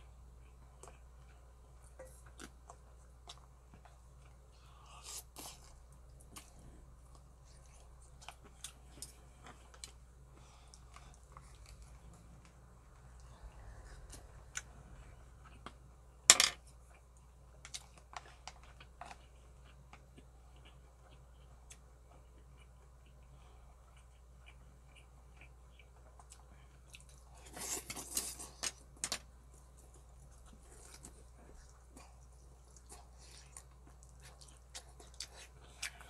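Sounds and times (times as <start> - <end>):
chewing: 16.9 - 36.0.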